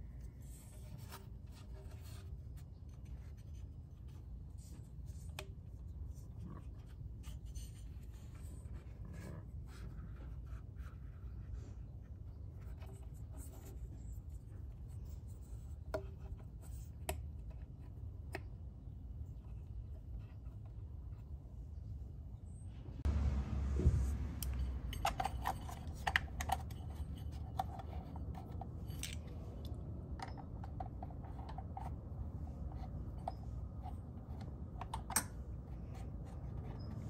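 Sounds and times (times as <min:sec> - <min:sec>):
steady low rumble: 0:22.6 - 0:25.9.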